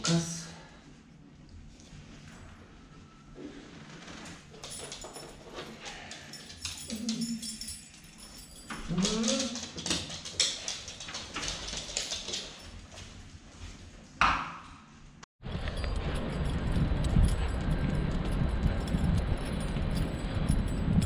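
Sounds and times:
leash clips clicking: 8.4s - 12.8s.

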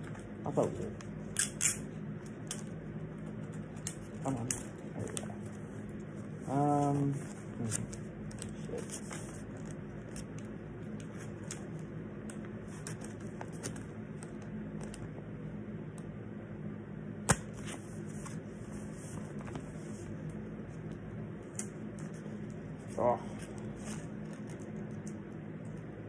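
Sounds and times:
steady low hum: 0.0s - 26.0s
paper rustling: 3.8s - 10.3s
sharp tape snap: 17.2s - 17.6s.

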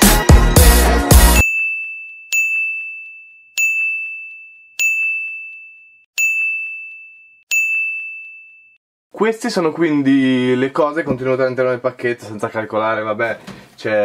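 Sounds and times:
bright ding: 1.4s - 8.8s.

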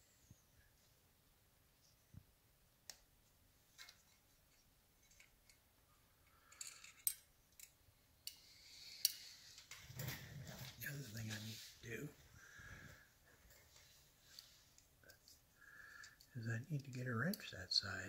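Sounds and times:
rustling: 8.7s - 15.5s.

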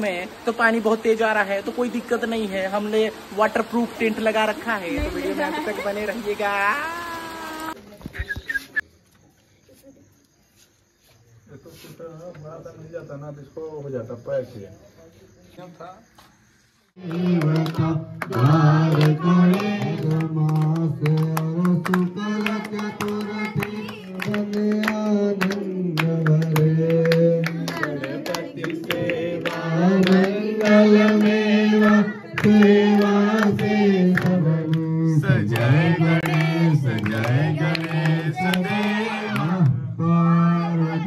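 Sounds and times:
hands clapping in rhythm: 17.0s - 39.8s
people singing along: 17.0s - 41.0s
man singing into a microphone: 20.1s - 27.8s, 33.6s - 41.0s.

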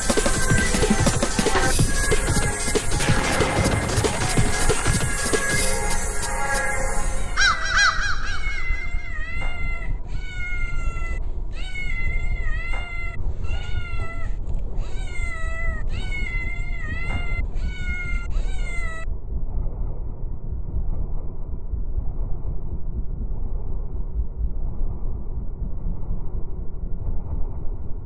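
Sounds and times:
kitten meowing: 8.2s - 19.0s.

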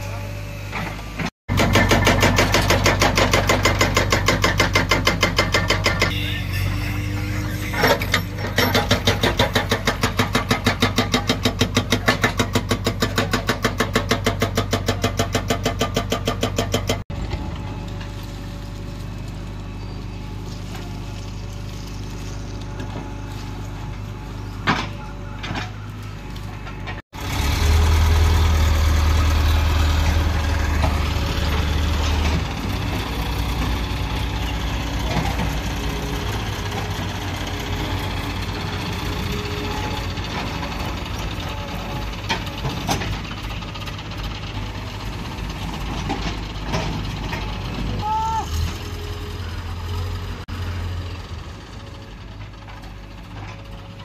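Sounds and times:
diesel engine running: 0.0s - 54.0s
hydraulic rock breaker hammering: 0.7s - 17.0s
deep engine drone: 17.1s - 54.0s.

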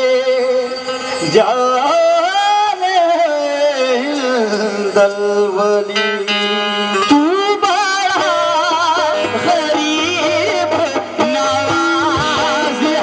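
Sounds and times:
harmonium: 0.0s - 13.0s
man singing ornamented line: 0.0s - 13.0s.

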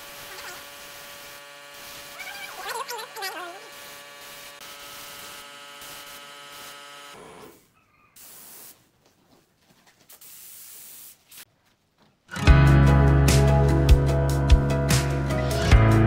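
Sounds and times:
spray gun hissing: 0.0s - 7.6s, 8.2s - 8.9s, 10.1s - 11.5s.

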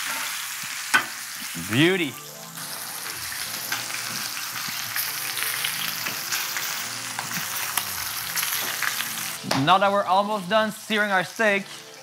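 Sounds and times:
steak sizzling in a pan: 0.0s - 9.6s.

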